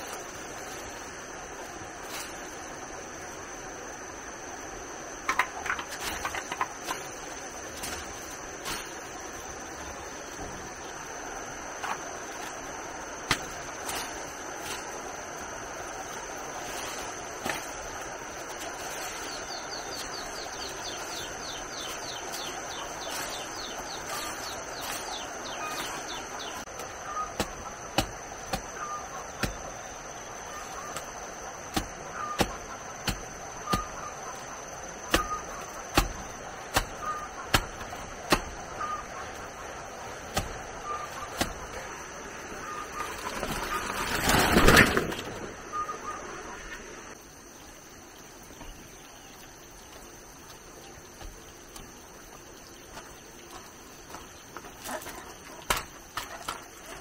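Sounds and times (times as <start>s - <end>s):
grass cutting strokes: 0.0s - 3.0s, 5.7s - 10.3s, 11.5s - 44.0s
leaves brushing microphone: 0.0s - 3.8s, 5.8s - 45.9s.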